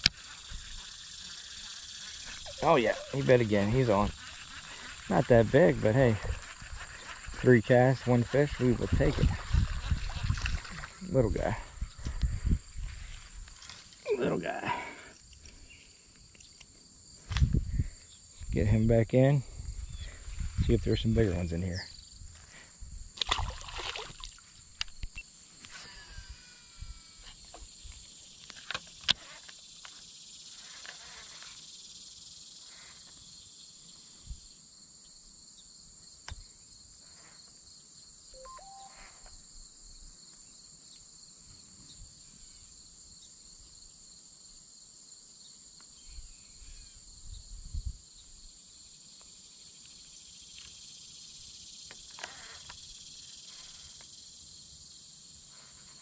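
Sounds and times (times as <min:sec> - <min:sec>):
high-pitched insect drone: 0:00.0 - 0:15.1, 0:25.2 - 0:28.2, 0:38.3 - 0:39.7, 0:49.7 - 0:56.0.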